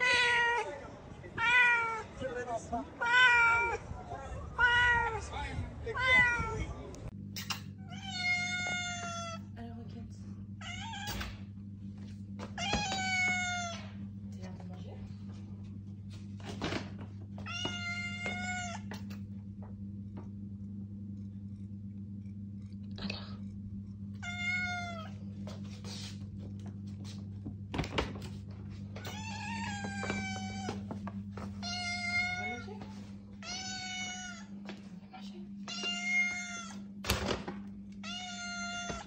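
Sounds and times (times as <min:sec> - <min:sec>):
cat meowing: 0:00.0 - 0:00.8, 0:01.4 - 0:02.1, 0:03.0 - 0:03.8, 0:04.6 - 0:05.3, 0:05.9 - 0:06.7, 0:07.8 - 0:09.5, 0:10.6 - 0:11.4, 0:12.5 - 0:13.9, 0:17.4 - 0:19.0, 0:24.2 - 0:25.2, 0:31.6 - 0:32.6, 0:33.4 - 0:34.6, 0:35.7 - 0:36.9, 0:38.0 - 0:39.0
steady low hum: 0:00.0 - 0:39.0.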